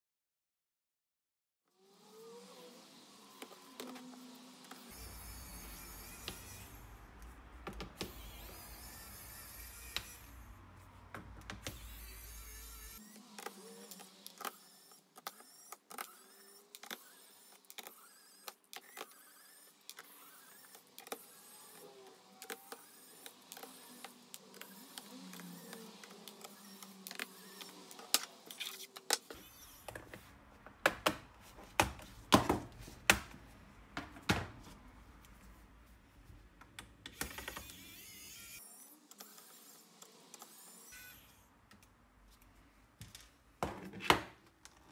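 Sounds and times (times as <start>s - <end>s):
electric screwdriver whirring: 11.6s - 30.0s.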